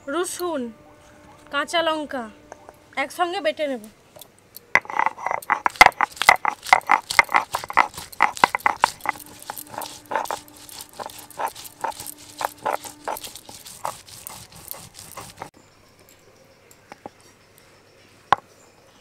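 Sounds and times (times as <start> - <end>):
stone grinding on stone: 4.8 - 15.6.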